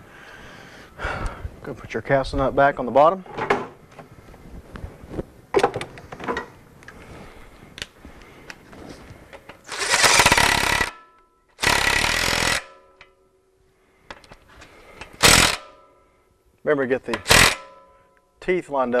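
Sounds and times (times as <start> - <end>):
impact wrench bursts: 9.6 - 13.2, 14.9 - 16.0, 17.0 - 18.0.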